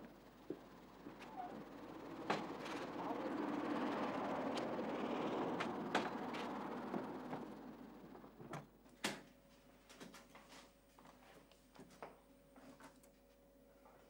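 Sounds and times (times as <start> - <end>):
scattered clicks and knocks: 2.1 - 3.2, 4.2 - 9.2.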